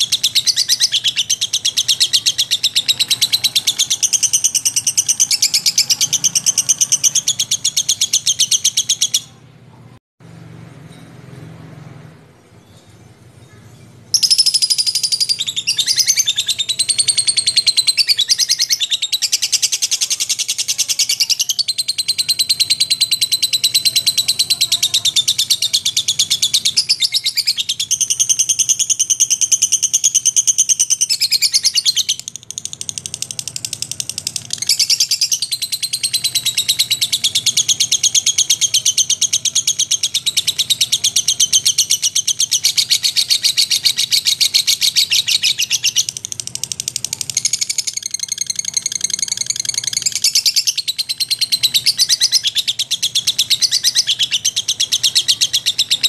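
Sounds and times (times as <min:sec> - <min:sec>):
lovebird chattering trill: 0:00.0 - 0:09.5, 0:13.4 - 0:56.0.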